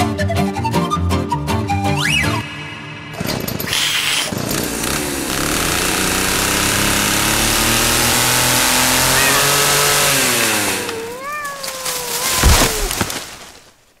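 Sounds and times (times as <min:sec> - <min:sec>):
falling whistle: 0:01.7 - 0:02.7
steady mechanical running noise: 0:03.2 - 0:11.1.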